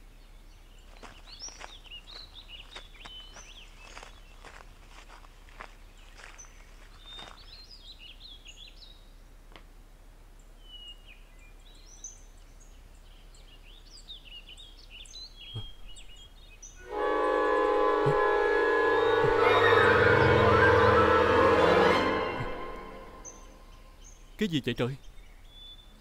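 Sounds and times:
birds chirping: 0:00.0 - 0:09.2, 0:10.3 - 0:26.0
soft thuds: 0:15.6 - 0:16.1
dramatic orchestral chord: 0:16.8 - 0:24.0.

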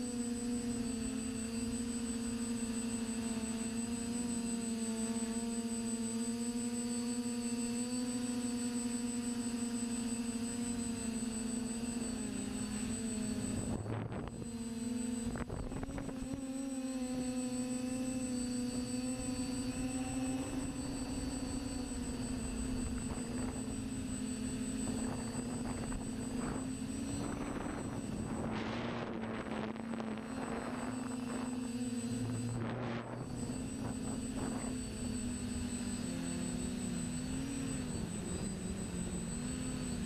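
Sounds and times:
drone motors droning whine: 0:00.0 - 0:40.0
wind buffeting microphone: 0:24.8 - 0:35.0.

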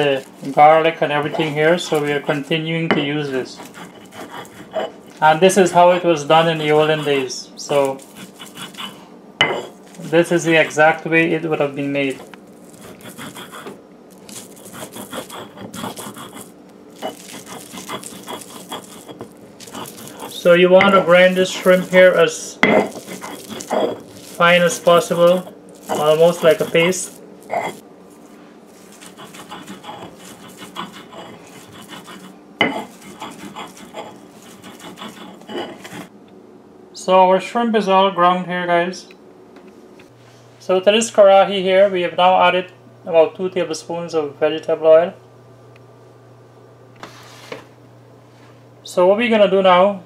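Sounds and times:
stone grinder scraping on stone: 0:00.0 - 0:11.0, 0:12.0 - 0:36.1.

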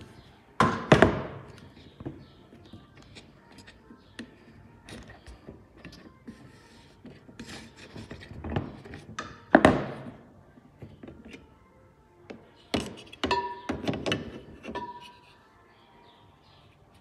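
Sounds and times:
plastic parts clicking and knocking: 0:12.3 - 0:15.2.

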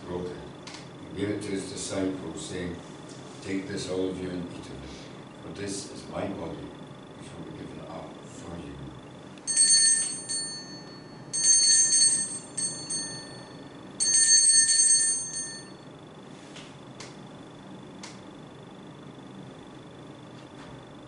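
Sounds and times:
altar bell ringing: 0:09.5 - 0:15.8.

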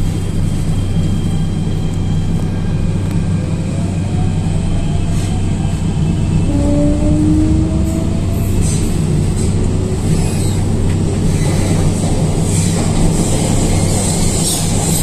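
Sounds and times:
train rumbling on rails: 0:00.0 - 0:15.0.

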